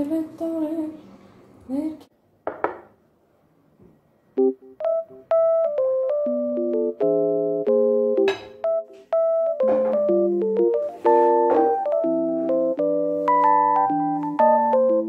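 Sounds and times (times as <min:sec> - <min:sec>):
piano music: 0:04.4 - 0:15.0.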